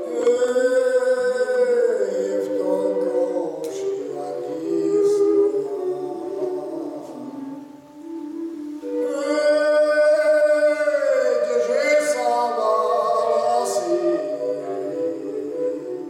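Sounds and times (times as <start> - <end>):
men singing together: 9.1 - 16.0.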